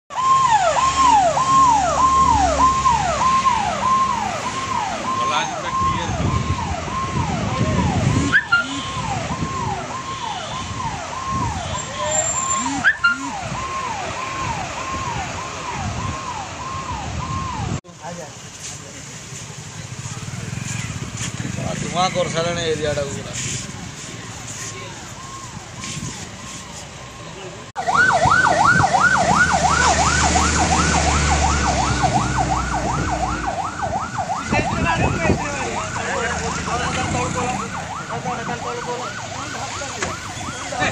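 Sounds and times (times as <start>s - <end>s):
fire engine siren wailing: 0.1s - 17.8s, 23.9s - 40.9s
truck engine rumble: 10.7s - 40.9s.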